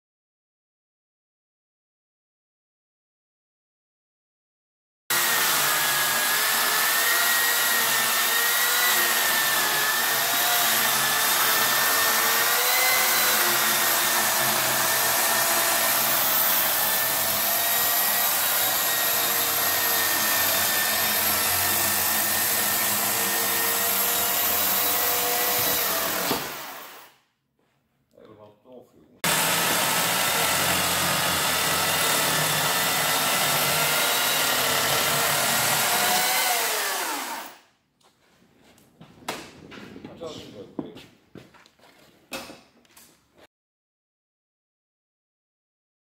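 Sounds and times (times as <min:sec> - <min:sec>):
electric chainsaw cutting wood: 0:05.1 - 0:27.2, 0:29.2 - 0:37.7.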